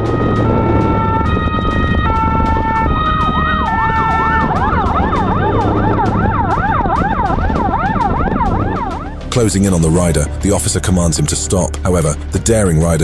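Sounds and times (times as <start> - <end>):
police siren: 0.0 - 9.3.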